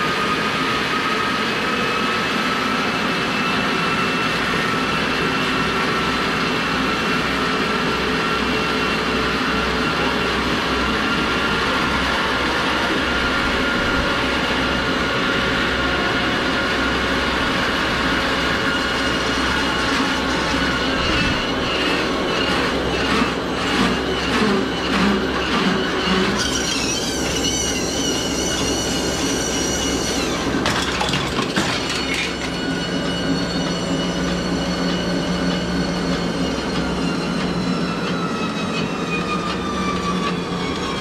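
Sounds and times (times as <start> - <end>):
motor-driven belt rumble with whine: 0.0 - 30.7.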